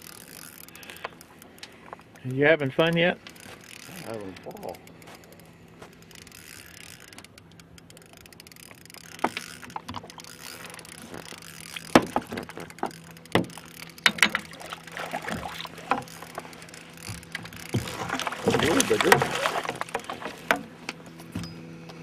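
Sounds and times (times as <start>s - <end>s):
faint steady hum: 0.0s - 22.0s
water splashing: 8.7s - 20.8s
landing net knocking against boat: 11.9s - 16.1s, 17.1s - 20.7s.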